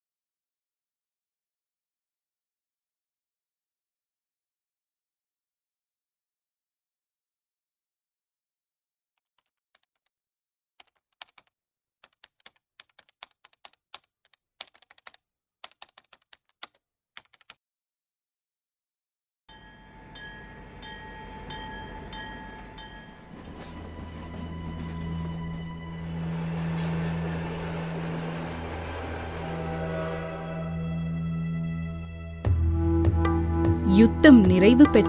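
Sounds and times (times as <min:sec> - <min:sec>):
keyboard typing clicks: 0:10.8 - 0:17.6
train running: 0:19.6 - 0:32.2.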